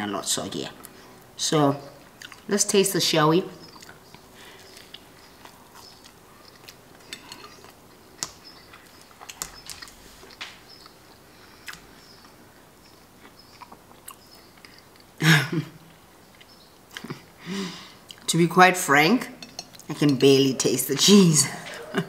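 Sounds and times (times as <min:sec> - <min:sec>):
chewing crunches: 0:03.7 - 0:11.0, 0:13.2 - 0:15.1.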